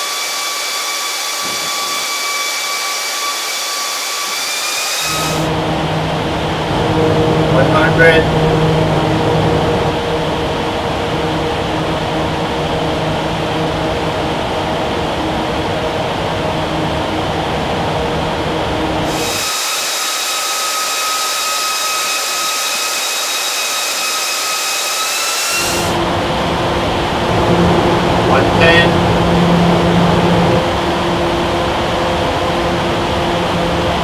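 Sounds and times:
steady high whine: 0.0s - 34.0s
fans rushing with low hum: 5.0s - 19.5s, 25.4s - 34.0s.

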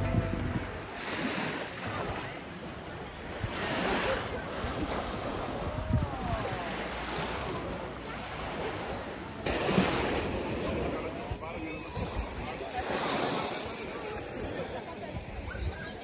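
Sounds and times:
small waves washing on sand: 0.9s - 15.4s
faint voices: 1.0s - 16.0s
wind buffeting microphone: 2.7s - 6.6s, 9.5s - 16.0s.

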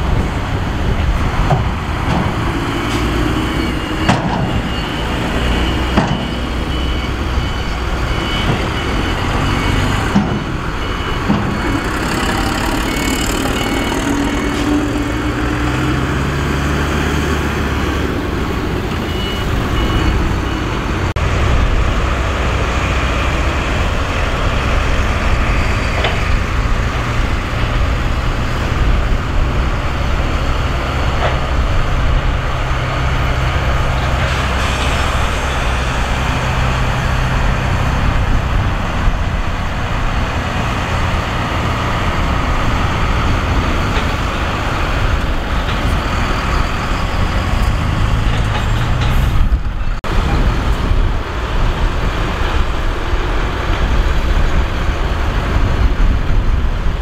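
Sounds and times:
diesel truck engine rumbling: 0.0s - 57.0s.

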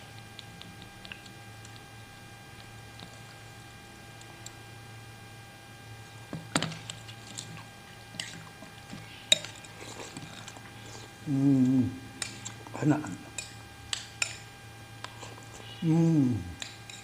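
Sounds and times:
wet stirring and eating noises: 0.0s - 4.8s, 6.0s - 17.0s
steady low hum: 0.0s - 17.0s
utensils clinking against bowl: 9.3s - 10.6s, 13.3s - 14.5s.

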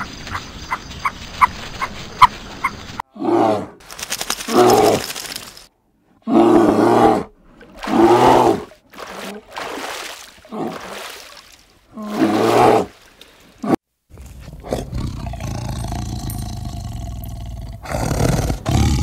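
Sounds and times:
large animal roaring: 6.2s - 7.3s, 14.5s - 19.0s.

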